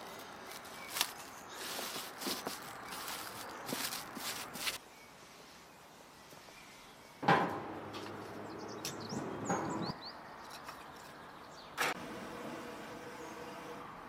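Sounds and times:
small birds chirping: 0.0s - 7.2s, 8.1s - 11.8s.

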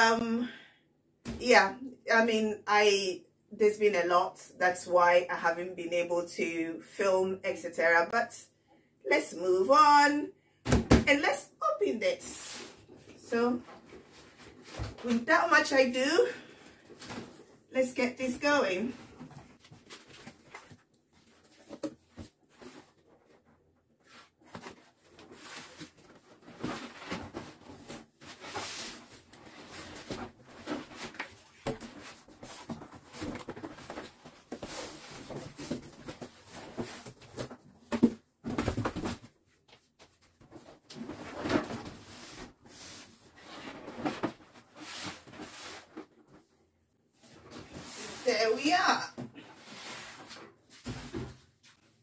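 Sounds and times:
cardboard flaps rustling and scraping: 18.9s - 39.3s.

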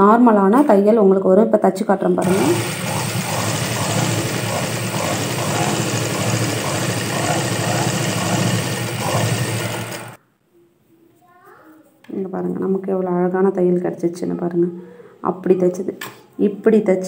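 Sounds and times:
sewing machine running: 2.2s - 10.2s.

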